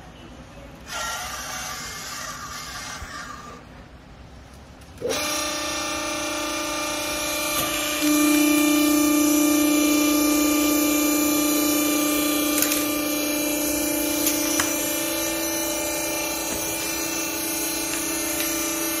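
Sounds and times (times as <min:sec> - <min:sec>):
hydraulic power unit humming: 0:00.0 - 0:19.0.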